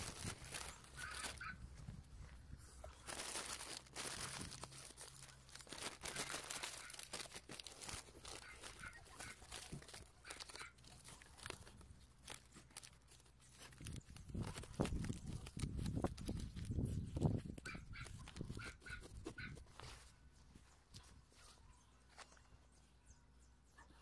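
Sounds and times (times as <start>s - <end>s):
paper bag rustling: 0.0s - 1.6s, 2.8s - 20.1s.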